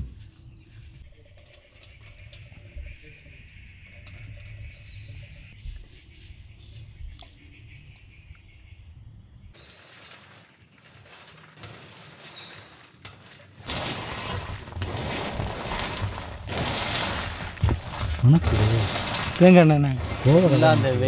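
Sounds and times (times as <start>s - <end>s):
popcorn rustling and crackling: 9.6s - 21.0s.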